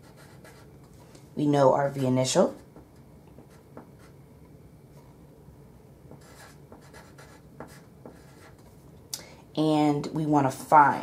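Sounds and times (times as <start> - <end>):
pen scratching on paper: 0.0 - 0.7, 6.1 - 8.7.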